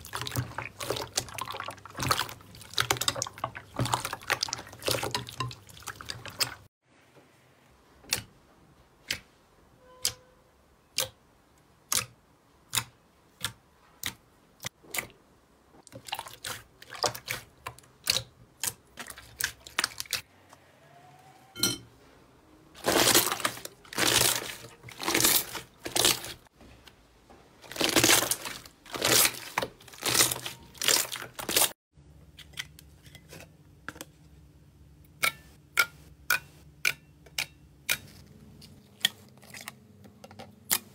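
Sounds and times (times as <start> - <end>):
slime wet squelches: 0.0 - 6.7, 10.9 - 20.3, 22.8 - 26.5, 27.6 - 31.8.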